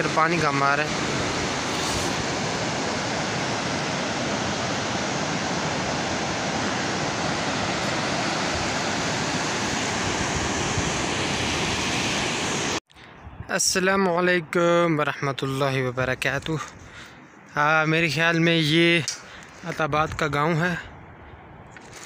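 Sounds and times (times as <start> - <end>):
fast river water rushing: 0.0 - 12.8.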